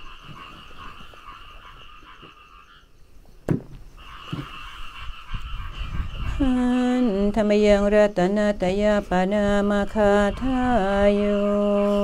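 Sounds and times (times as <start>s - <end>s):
chorus of pulsing animal calls: 0.0s - 7.2s, 9.6s - 12.0s
sharp knock: 3.5s - 4.5s.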